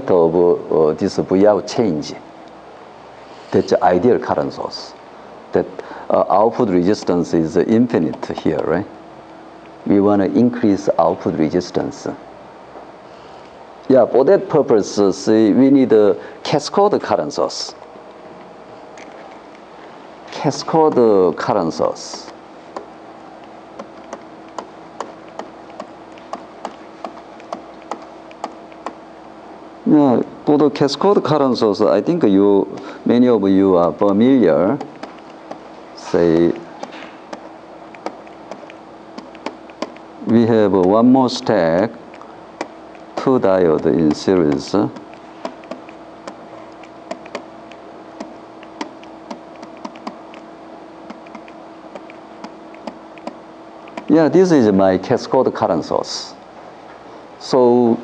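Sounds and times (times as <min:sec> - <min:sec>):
steady low hum: 0:00.0 - 0:58.0
stylus clicking on tablet screen: 0:23.8 - 0:29.0, 0:43.8 - 0:47.4, 0:48.2 - 0:50.4, 0:51.1 - 0:54.1
stylus tapping on tablet screen: 0:23.8 - 0:29.0.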